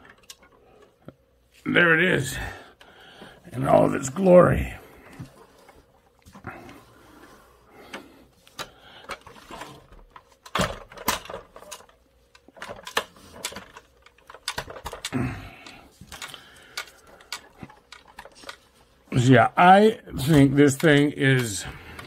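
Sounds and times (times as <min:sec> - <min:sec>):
plastic toy parts clicking: 0:10.4 - 0:18.6.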